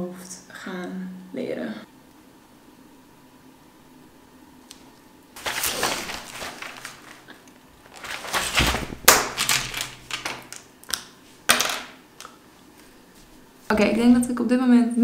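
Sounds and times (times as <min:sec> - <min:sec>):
paper rustling: 0:05.4 - 0:10.6
pens knocking on desk: 0:09.0 - 0:10.6, 0:11.5 - 0:12.0.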